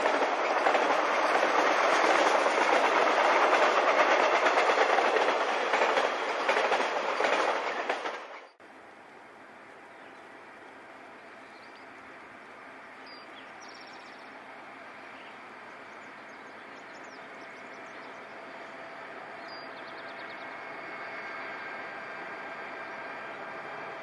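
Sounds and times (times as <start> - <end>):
distant freight train rumble: 0.0 - 24.0
bird chirping: 13.0 - 14.4, 15.0 - 18.7, 19.4 - 20.7.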